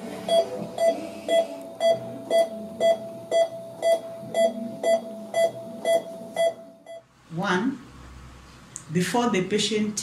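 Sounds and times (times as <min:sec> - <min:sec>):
patient monitor beeping: 0:00.2 - 0:07.0.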